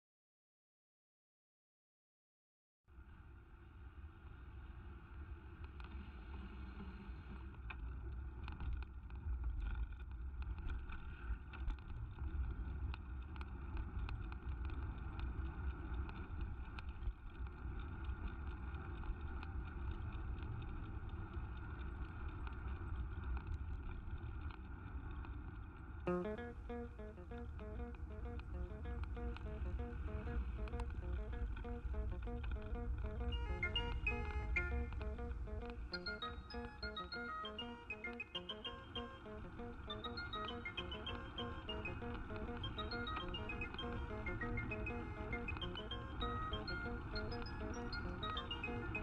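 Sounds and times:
guitar music: 26.1s - 49.0s.

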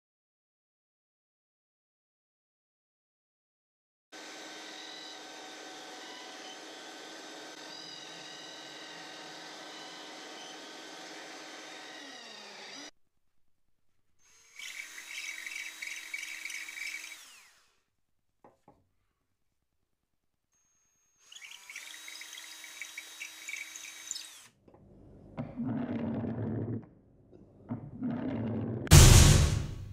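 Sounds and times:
cordless drill whine: 4.2s - 12.9s, 14.2s - 17.8s, 20.6s - 24.6s
wooden toy rolling on stone: 25.4s - 26.9s.

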